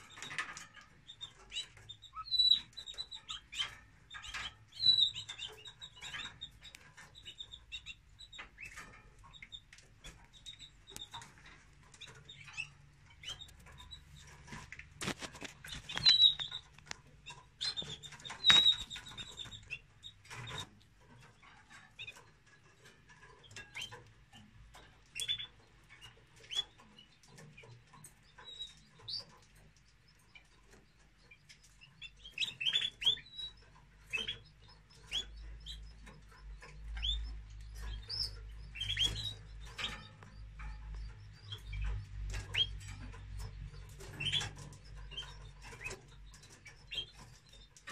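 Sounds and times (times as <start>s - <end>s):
nestlings peeping: 0.0s - 47.9s
sharp clicks and knocks: 8.3s - 47.9s.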